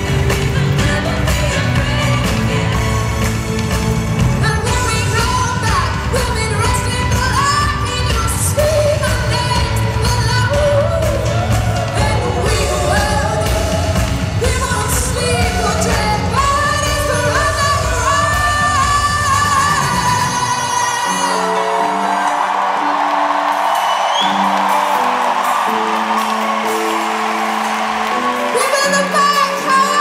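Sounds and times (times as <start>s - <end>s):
woman singing: 0.0s - 3.5s, 4.2s - 22.6s, 28.5s - 30.0s
live pop-rock band: 0.0s - 30.0s.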